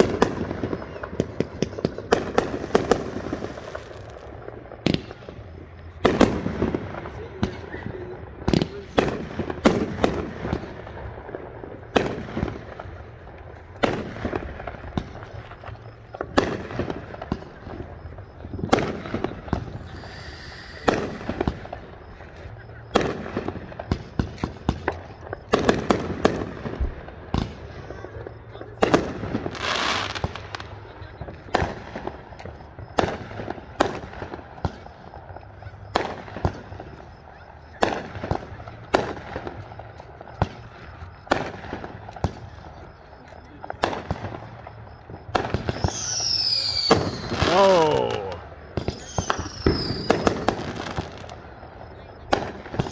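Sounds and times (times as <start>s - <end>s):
fireworks exploding: 0.0s - 52.9s
firework hissing rush: 18.8s - 22.4s.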